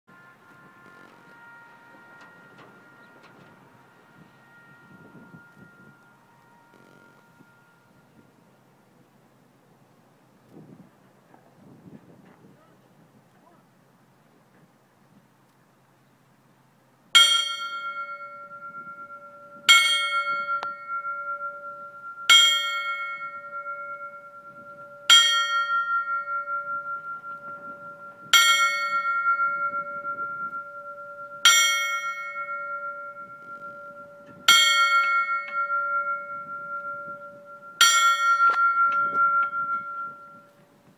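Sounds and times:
fire truck bell tolling: 0:00.7 - 0:08.6, 0:17.2 - 0:40.8.

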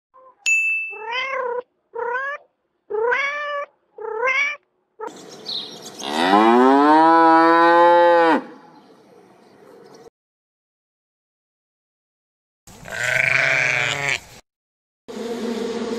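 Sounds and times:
cat meowing: 0:01.0 - 0:05.1
cow mooing: 0:06.0 - 0:08.6, 0:12.8 - 0:14.2.

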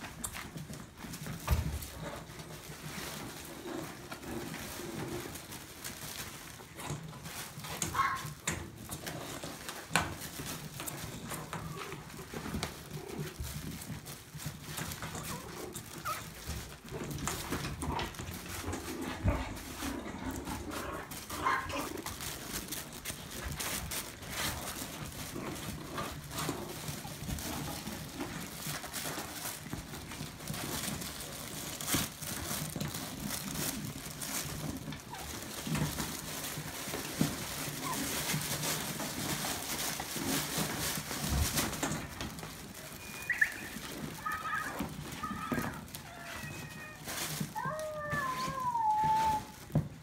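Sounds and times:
puppy paws scrabbling on floor: 0:00.0 - 0:50.0
high puppy squeaks: 0:15.1 - 0:16.5, 0:42.9 - 0:49.6.

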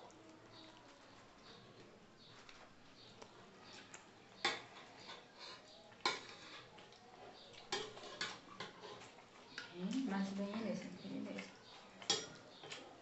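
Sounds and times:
cutlery and plates clinking: 0:04.4 - 0:10.0, 0:11.7 - 0:13.0.

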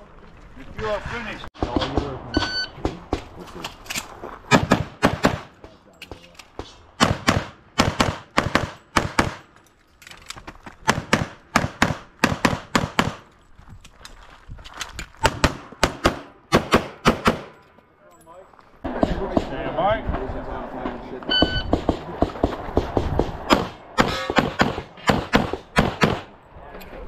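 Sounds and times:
rapid pistol shots: 0:04.5 - 0:05.5, 0:07.0 - 0:09.4, 0:10.9 - 0:13.2, 0:15.2 - 0:17.5, 0:21.7 - 0:26.3.

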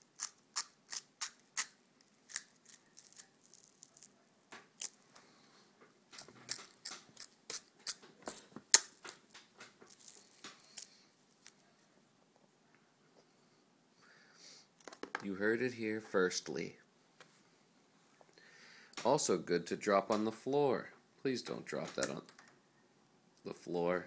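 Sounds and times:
baby chewing crunchy wafer: 0:00.0 - 0:05.0, 0:06.1 - 0:11.5.

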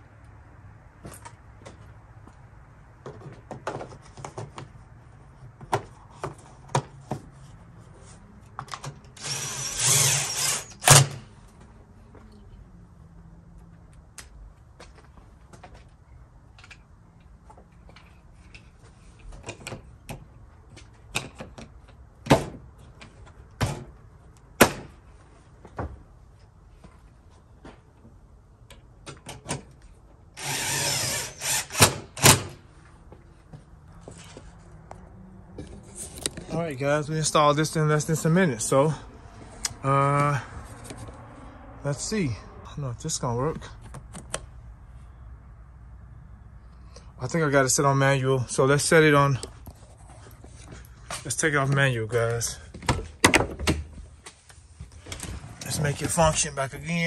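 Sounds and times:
power driver running: 0:09.2 - 0:11.1, 0:30.4 - 0:32.0.

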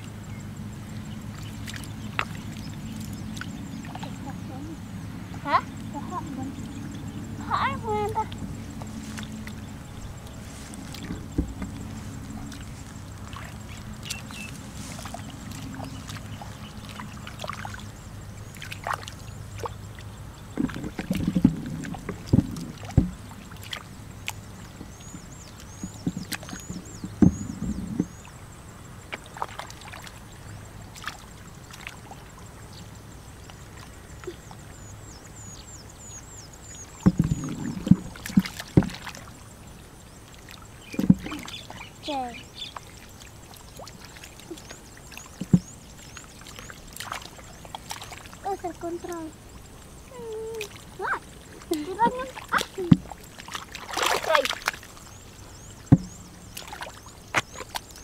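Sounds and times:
sloshing through muddy water: 0:00.0 - 0:58.0
small splashes and clicks: 0:01.3 - 0:04.6, 0:05.4 - 0:28.3, 0:29.0 - 0:39.5, 0:40.1 - 0:58.0.

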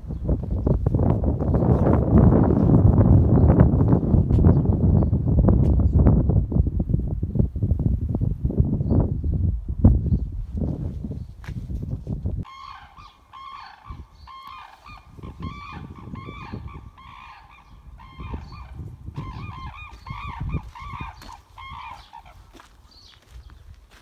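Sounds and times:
cranes trumpeting calls: 0:12.4 - 0:23.1.

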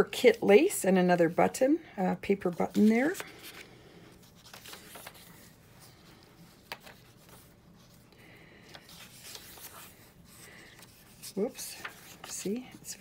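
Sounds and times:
paper rubbing and rustling: 0:02.5 - 0:08.1, 0:08.7 - 0:13.0.

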